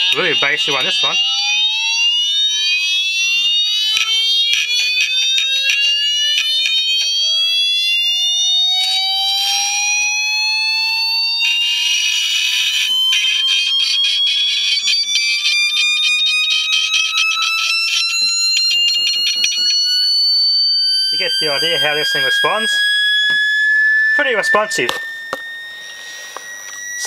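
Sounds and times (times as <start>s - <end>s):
buzzy tone rising in pitch: 0.0s - 27.0s
crackling clicks: 3.4s - 7.3s, 11.4s - 20.6s, 24.5s - 27.0s.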